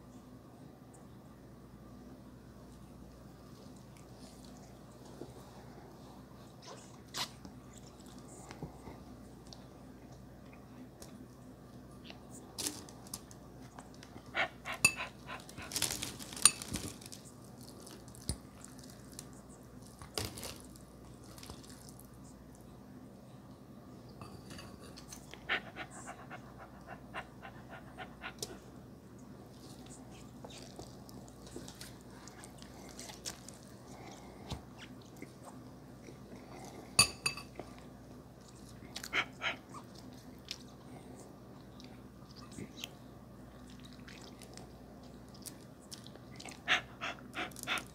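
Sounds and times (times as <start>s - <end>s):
chewing and mouth sounds: 38.4s - 41.0s, 41.6s - 47.9s.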